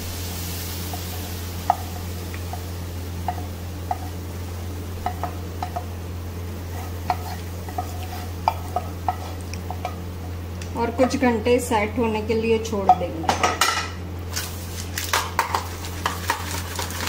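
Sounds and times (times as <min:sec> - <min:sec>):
steady low hum: 0:00.0 - 0:17.0
spatula scraping frying pan: 0:06.6 - 0:10.0.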